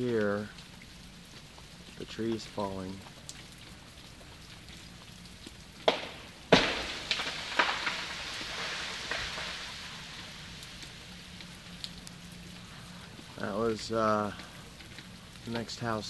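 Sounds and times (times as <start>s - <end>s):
rain pattering: 0.0s - 16.0s
tree cracking: 1.3s - 16.0s
branches and ice crashing down: 5.8s - 13.1s.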